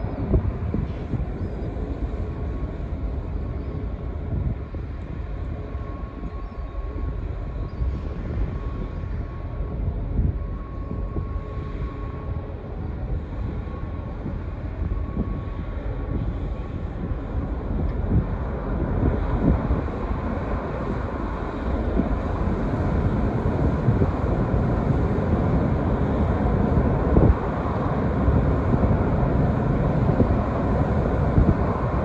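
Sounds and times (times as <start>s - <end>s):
faint high whine: 0.0s - 32.0s
wind buffeting microphone: 0.0s - 32.0s
ship machinery rumble: 8.3s - 32.0s.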